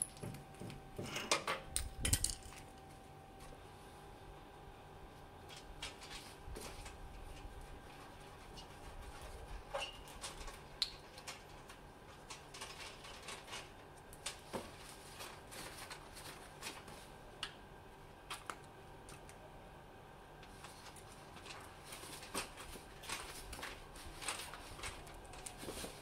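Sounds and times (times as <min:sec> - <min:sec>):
faint steady hum: 0:00.0 - 0:26.0
copper pipe rustling and clicking: 0:05.4 - 0:17.6, 0:20.4 - 0:26.0.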